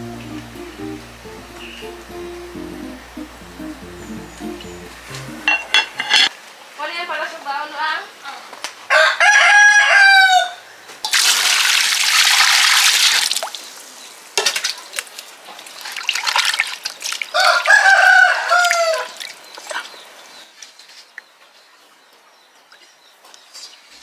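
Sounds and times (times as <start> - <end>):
rooster crowing: 8.9 - 10.7, 17.3 - 19.2
water pouring into metal basin: 11.1 - 13.7.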